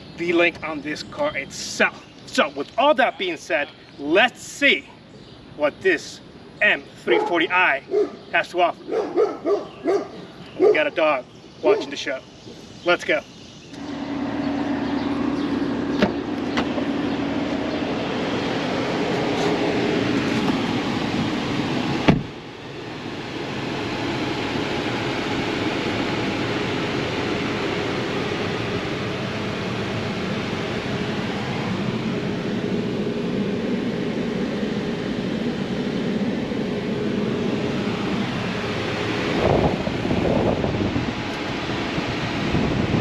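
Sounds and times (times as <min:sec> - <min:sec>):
car engine and road noise: 0:05.0 - 0:43.0.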